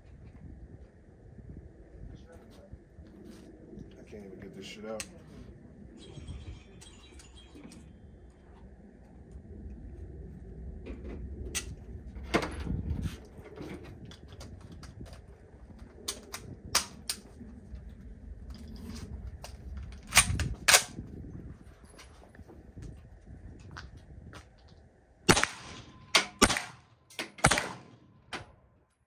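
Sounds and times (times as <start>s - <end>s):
low steady rumble: 0.0s - 28.8s
gunshots: 25.3s - 28.1s.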